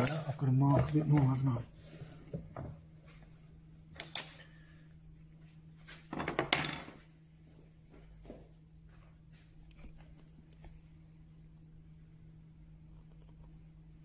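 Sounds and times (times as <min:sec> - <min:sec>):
faint low hum: 0:00.0 - 0:14.0
tools knocking on workbench: 0:06.1 - 0:07.0.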